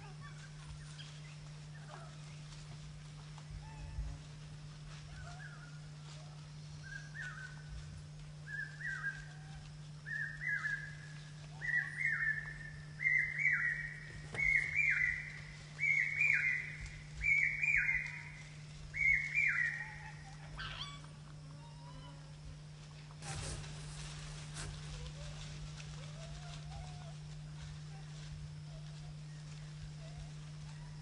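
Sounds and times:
bird shrill whistled calls: 0:11.6 - 0:18.4, 0:19.0 - 0:21.0.

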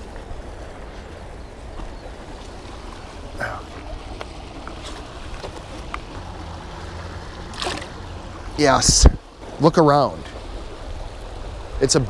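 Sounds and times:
wind rumble on microphone: 0:00.0 - 0:09.4
river water rushing over rocks: 0:00.0 - 0:12.0.

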